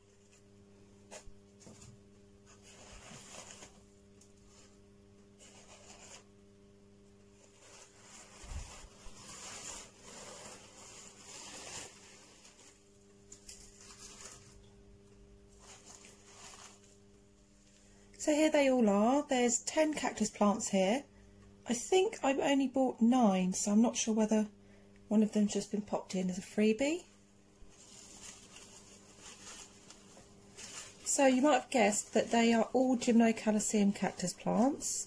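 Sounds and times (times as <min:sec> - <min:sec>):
low steady hum: 0:00.0 - 0:35.0
paper crinkling and rustling: 0:01.1 - 0:04.8, 0:05.4 - 0:06.3, 0:07.3 - 0:14.7, 0:15.5 - 0:17.0, 0:27.6 - 0:34.8.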